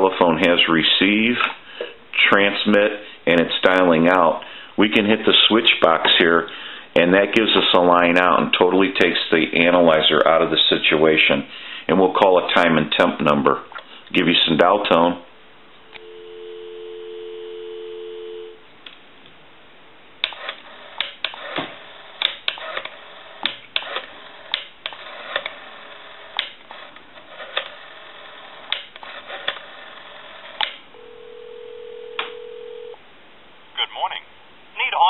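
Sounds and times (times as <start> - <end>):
telephone ringback tone: 15.9 - 18.6, 31.0 - 33.0
telephone dial tone: 16.0 - 18.6, 31.0 - 33.0.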